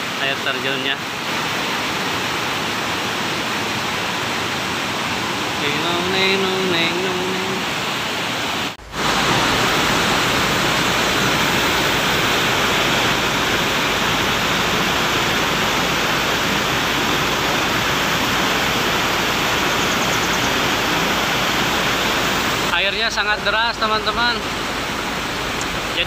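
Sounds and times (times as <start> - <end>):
stream rushing over boulders: 0.0 - 26.0.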